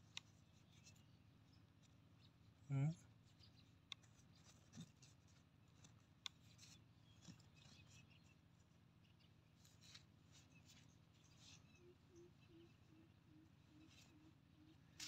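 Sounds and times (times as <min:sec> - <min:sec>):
fingers scratching dry sandy soil: 0:03.9 - 0:08.3.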